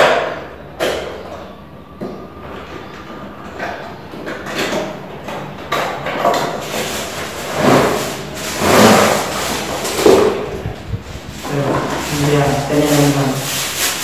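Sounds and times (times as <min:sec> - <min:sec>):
plastic packaging rustling: 0:06.3 - 0:14.0.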